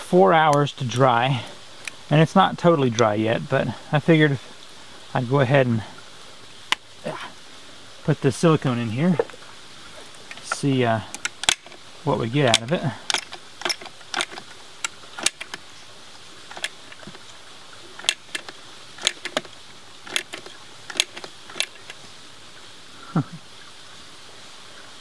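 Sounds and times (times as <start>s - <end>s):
caulking gun trigger clicking: 11.1s - 11.8s, 12.5s - 15.6s, 16.5s - 17.1s, 18.0s - 19.5s, 20.1s - 22.0s.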